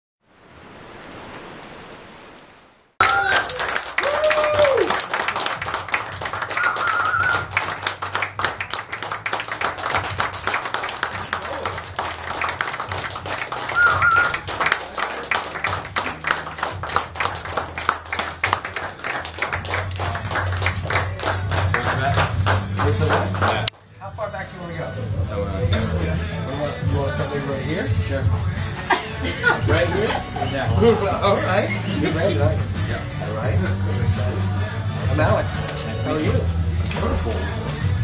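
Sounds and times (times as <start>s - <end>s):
people whooping: 3.0s - 5.2s, 6.5s - 7.6s, 13.7s - 14.4s
crowd clapping: 3.0s - 23.8s, 35.5s - 38.0s.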